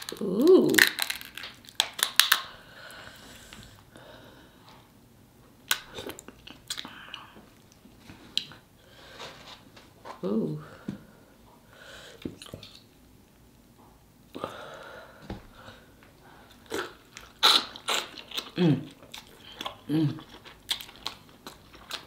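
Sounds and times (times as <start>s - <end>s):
crab shell cracking: 0.0s - 2.5s.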